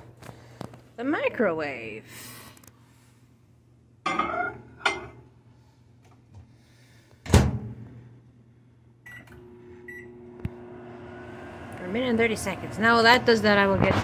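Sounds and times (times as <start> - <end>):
microwave humming: 7.3 - 14.0.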